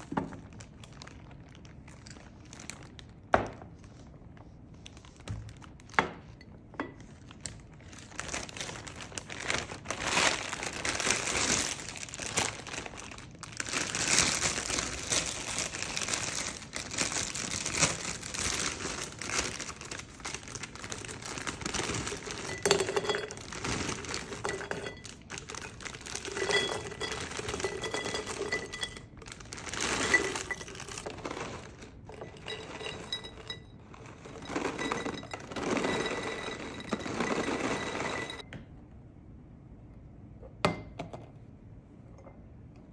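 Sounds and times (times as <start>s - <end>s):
plastic bag crinkling: 0.0s - 6.4s, 7.0s - 38.4s
pieces rattling on glass: 18.3s - 38.4s.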